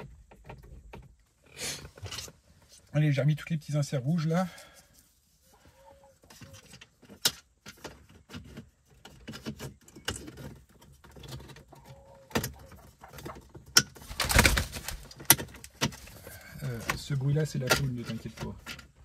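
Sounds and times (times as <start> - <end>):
rustling scrape of plastic: 14.0 - 15.2.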